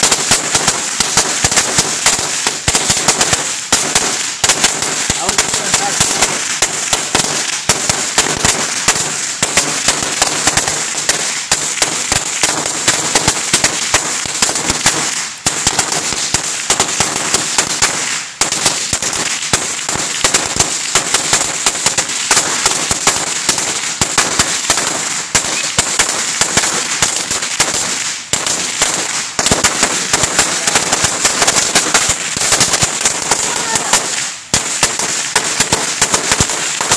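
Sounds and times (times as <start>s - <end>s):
firecrackers crackling: 0.0s - 36.9s.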